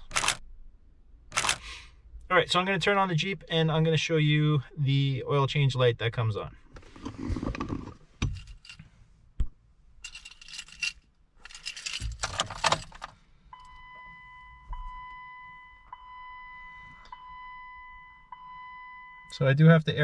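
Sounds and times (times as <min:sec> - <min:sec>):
key ring jangling: 0:10.0 - 0:13.0.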